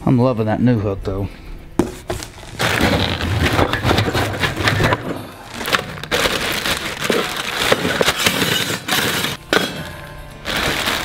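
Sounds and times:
plastic wrapping crinkling: 1.9s - 9.4s, 10.4s - 11.0s.

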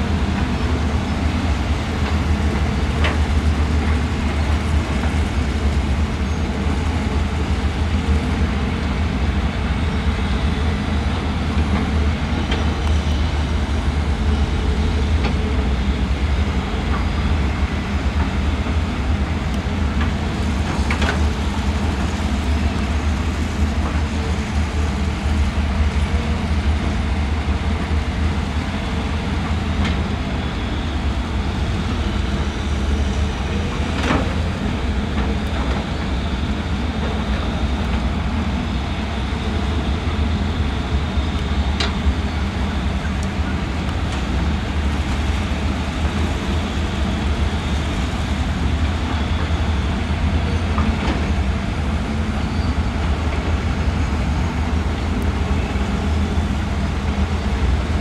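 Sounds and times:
excavator diesel engines droning: 0.0s - 58.0s.

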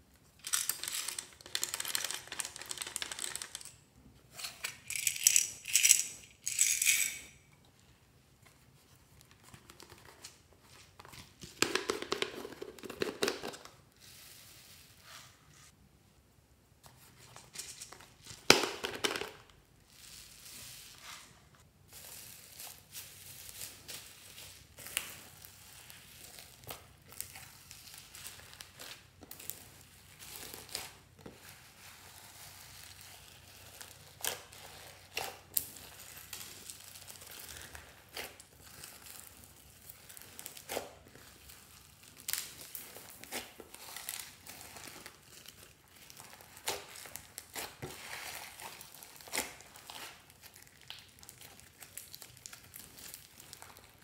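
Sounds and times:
slime kneaded with crackles: 22.0s - 54.0s.

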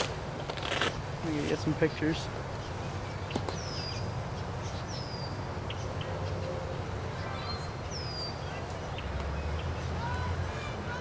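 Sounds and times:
bird chirps: 1.9s - 10.2s.

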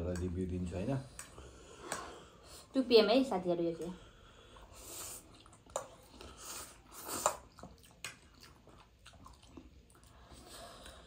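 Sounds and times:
chewing: 3.9s - 11.0s
people slurping noodles: 4.4s - 11.0s
lip smacks: 5.1s - 11.0s.

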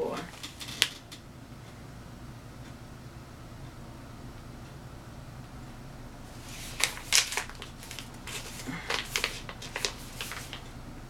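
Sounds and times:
plastic pouch crinkling: 0.3s - 1.0s, 6.3s - 10.7s.

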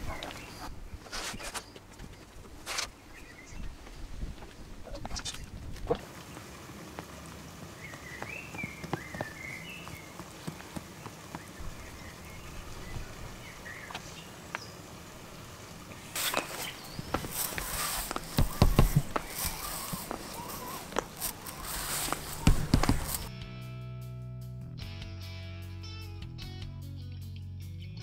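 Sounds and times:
glue roller rolling on wood: 16.0s - 23.3s
sharp knocks: 17.1s - 20.2s.

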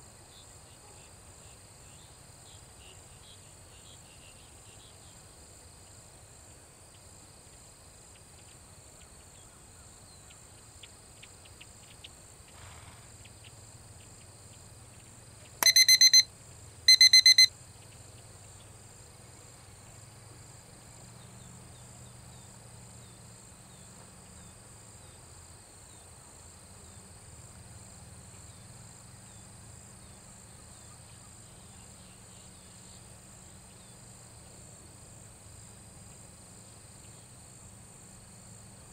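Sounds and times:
loud electronic beeps: 15.6s - 16.3s, 16.9s - 17.5s
high-pitched insect chorus: 16.9s - 17.5s.

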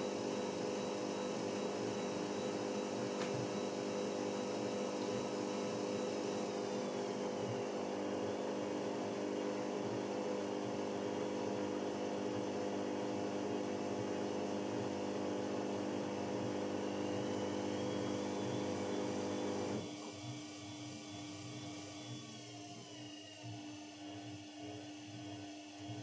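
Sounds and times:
washing machine humming: 0.0s - 10.2s, 10.8s - 21.2s.

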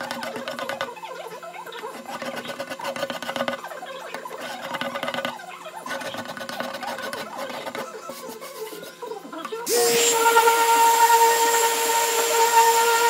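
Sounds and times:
wooden pieces squeaking and clicking: 0.0s - 8.1s.

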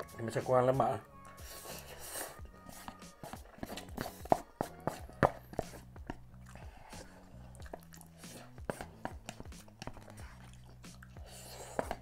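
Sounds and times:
faint background music: 0.0s - 12.0s
chewing and slurping noodles: 1.2s - 12.0s
wet mouth clicks: 6.1s - 8.6s, 9.6s - 11.4s.

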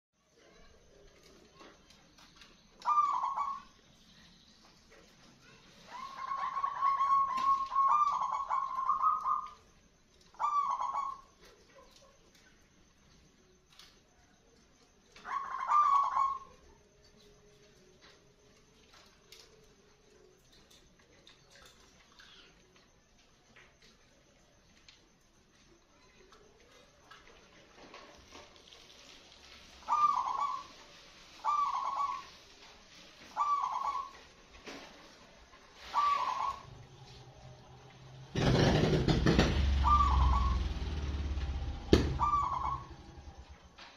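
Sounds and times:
dove cooing: 2.8s - 3.8s, 5.8s - 9.6s, 10.3s - 12.0s, 15.2s - 16.6s, 29.8s - 32.5s, 33.3s - 34.2s, 35.7s - 37.0s, 38.3s - 43.5s.

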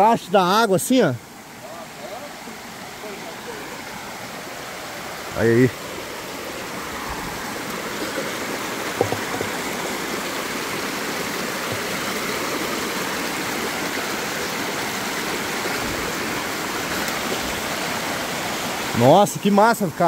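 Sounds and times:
stream splashing over rocks: 0.4s - 20.0s
brief knock: 9.0s - 9.6s.

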